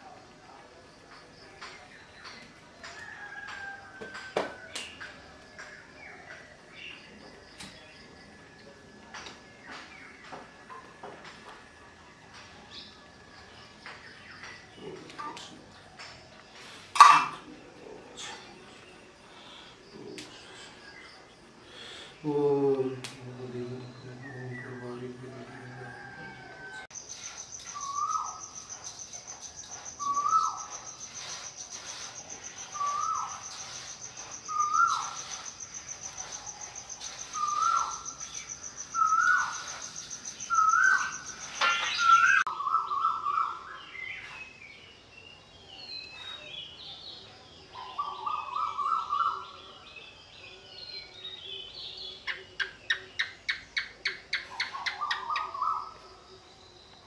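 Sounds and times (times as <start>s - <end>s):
insect high buzz: 27.0s - 42.4s
high bird chirps: 27.0s - 44.6s.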